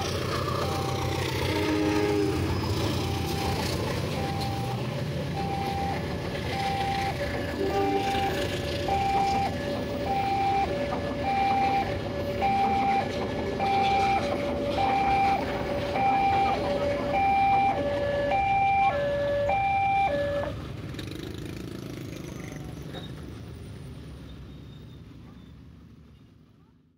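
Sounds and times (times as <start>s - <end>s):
two-tone crossing alarm chime: 0.0s - 1.8s, 2.6s - 20.6s
train rumbling past: 0.0s - 26.5s
street traffic: 0.0s - 26.9s.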